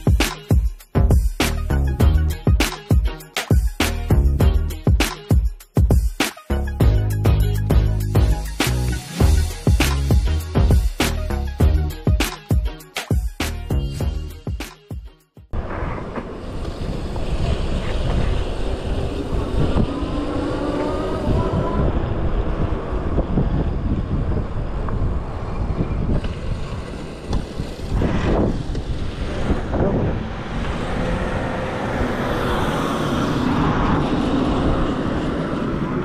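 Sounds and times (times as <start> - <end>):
wind buffeting microphone: 15.6 - 36.0.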